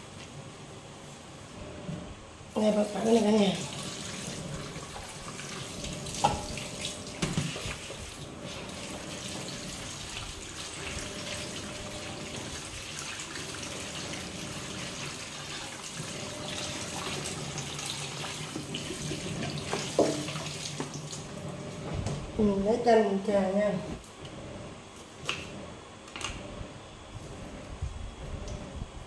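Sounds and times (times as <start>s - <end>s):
tap water running into sink: 3.1s - 21.3s.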